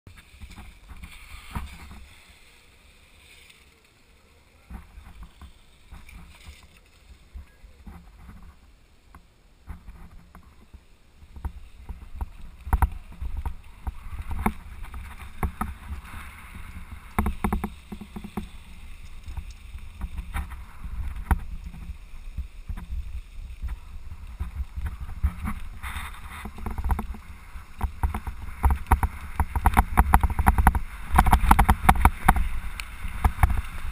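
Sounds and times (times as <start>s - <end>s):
wind and tyres on dirt: 0.0s - 33.9s
bike rattling knocks: 11.3s - 21.9s, 24.4s - 33.9s.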